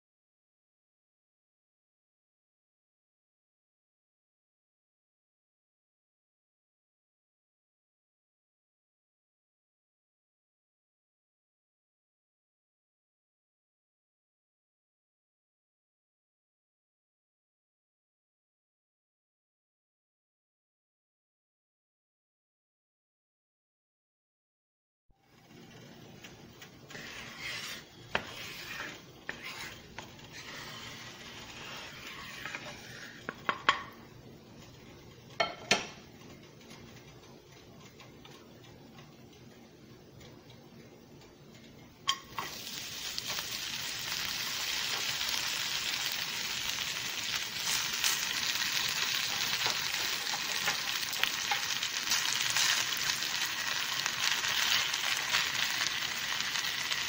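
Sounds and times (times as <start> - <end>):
potato frying sizzle: 25.3 - 35.1, 42.1 - 57.0
butter sizzling in frying pan: 26.9 - 33.5, 42.1 - 57.0.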